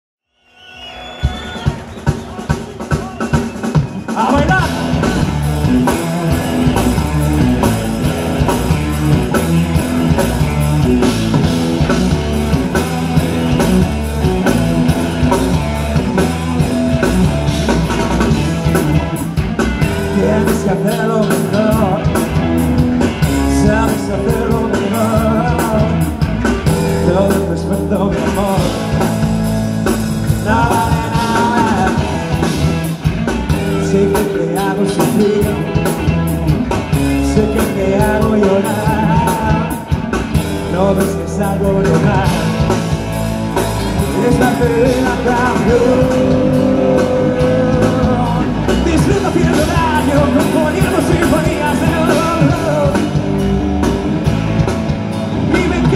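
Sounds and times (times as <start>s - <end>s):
drums: 0.4s - 55.9s
electric guitars: 1.1s - 55.9s
bass guitar: 2.8s - 55.9s
man singing: 4.1s - 8.0s, 19.8s - 29.3s, 30.2s - 43.0s, 43.9s - 53.5s, 55.4s - 55.9s.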